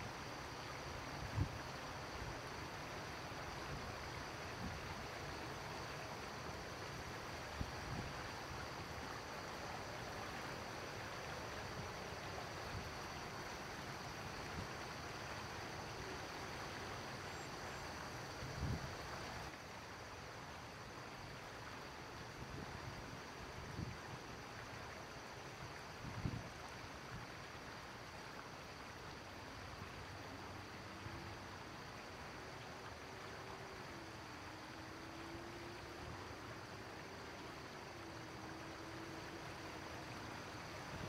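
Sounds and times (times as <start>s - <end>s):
river water rushing over rocks: 24.2s - 41.0s.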